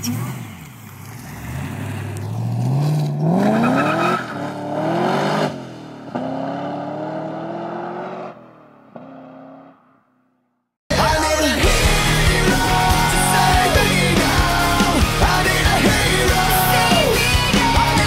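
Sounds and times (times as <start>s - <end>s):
car accelerating hard: 0.0s - 10.0s.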